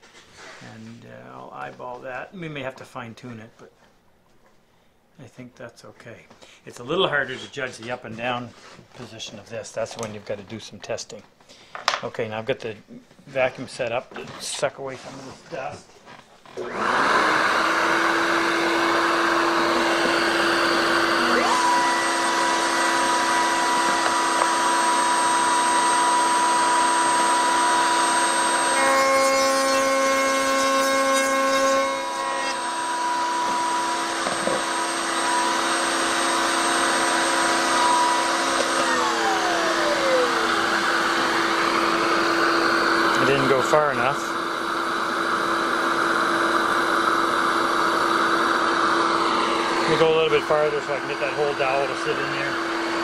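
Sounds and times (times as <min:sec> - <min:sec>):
shop vacuum running: 0:16.4 - 0:53.0
power tool motor running: 0:16.5 - 0:53.0.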